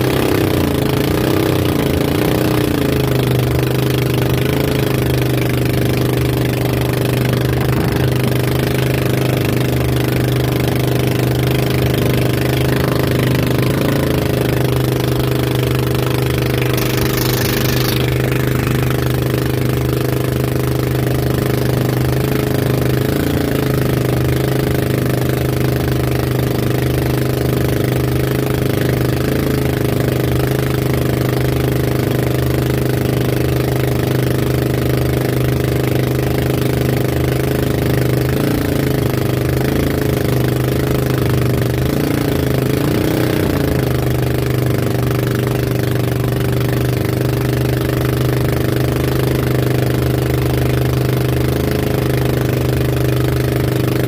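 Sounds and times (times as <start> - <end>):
boat engine droning: 0.0 - 54.0
water rushing and spray: 5.0 - 21.0.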